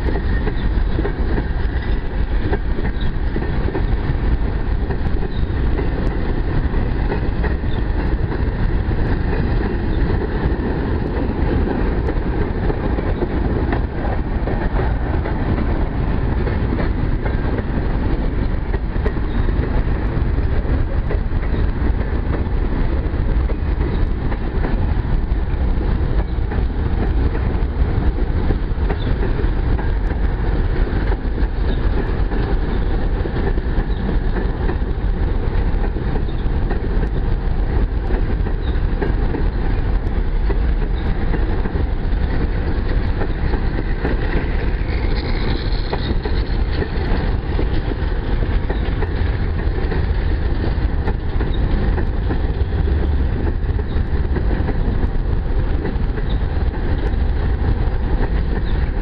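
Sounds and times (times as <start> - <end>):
steel wheels rumbling on rails: 0.0 - 59.0
wheels clacking over rail joints: 0.0 - 59.0.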